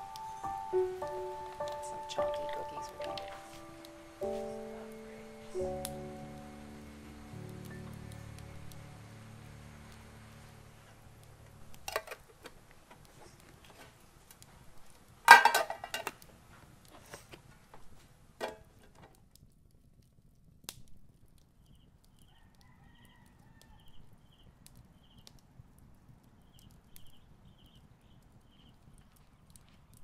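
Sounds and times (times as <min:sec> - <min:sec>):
metal lid clattering onto tin: 0:15.3 - 0:16.1
distant rooster crowing: 0:22.2 - 0:24.4.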